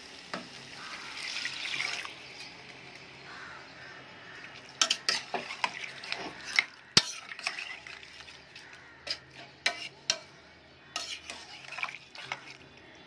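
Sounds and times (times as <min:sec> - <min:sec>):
water hissing on hot food: 0:00.0 - 0:10.1.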